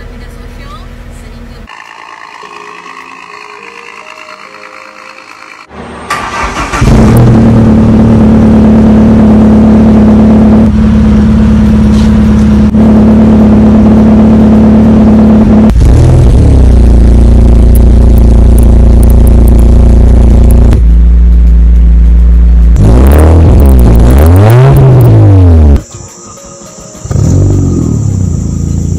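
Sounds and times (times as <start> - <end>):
car engine idling: 6.1 - 25.8, 27.0 - 28.9.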